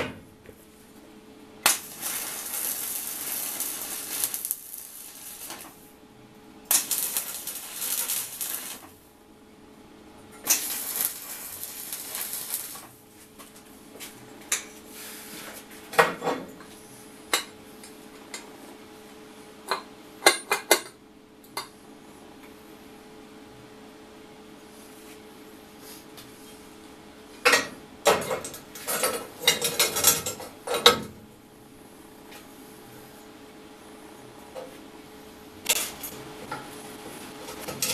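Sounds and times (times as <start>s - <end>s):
arc welding crackling hiss: 1.6s - 6.0s, 6.7s - 9.1s, 10.4s - 13.3s, 35.6s - 37.9s.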